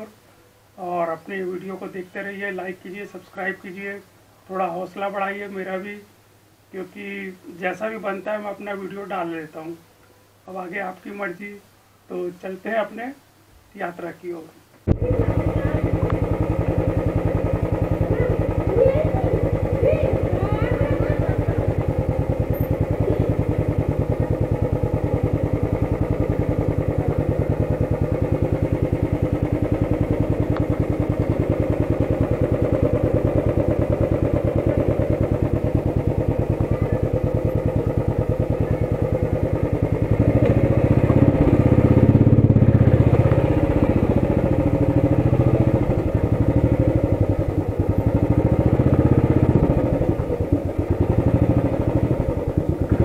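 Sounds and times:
motorcycle engine running: 14.9 - 53.0.

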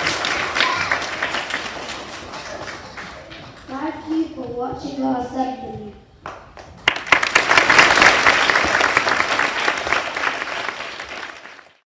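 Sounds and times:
children applauding: 0.0 - 3.7, 6.8 - 11.8.

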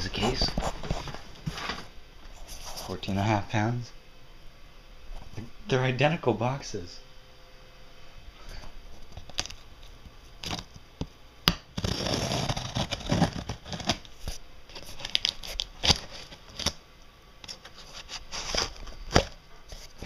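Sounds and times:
packing tape tearing: 9.1 - 9.6, 10.4 - 10.7, 11.7 - 16.8, 17.4 - 19.4.

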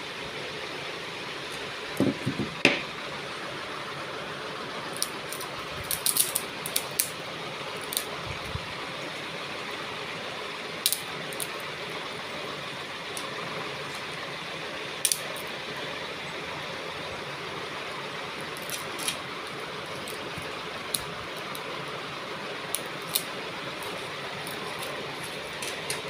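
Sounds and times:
stone beads clicking and rattling: 5.0 - 7.1, 7.8 - 8.1, 10.8 - 11.6, 22.7 - 26.0.

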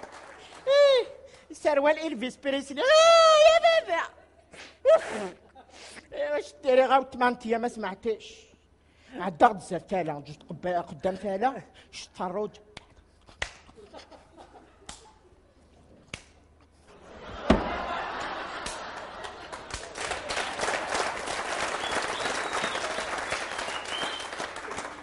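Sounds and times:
audience applause: 0.0 - 0.7, 17.7 - 25.0
sharp thump: 17.5 - 17.8.

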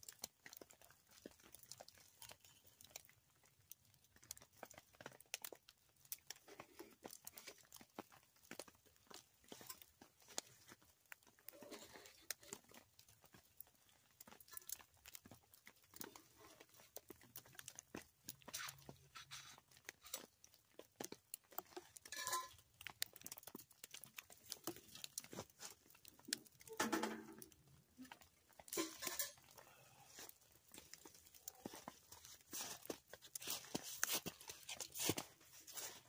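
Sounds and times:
metal clanks: 26.7 - 27.4.

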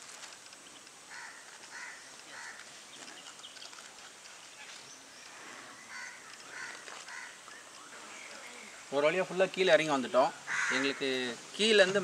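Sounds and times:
crows cawing: 1.1 - 2.7, 5.7 - 7.5, 10.4 - 11.4.

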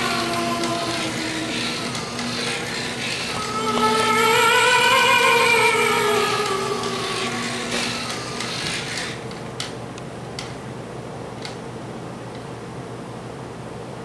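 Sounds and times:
music: 0.0 - 8.7
motor humming: 0.0 - 9.8.

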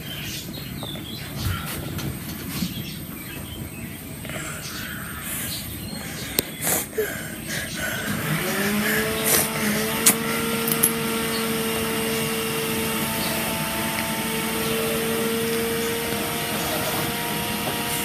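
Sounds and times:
small electric motor humming: 7.8 - 18.0.

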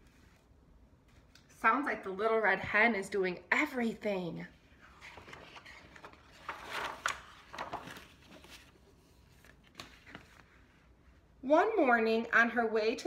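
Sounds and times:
paper pages rustling: 4.7 - 11.2.

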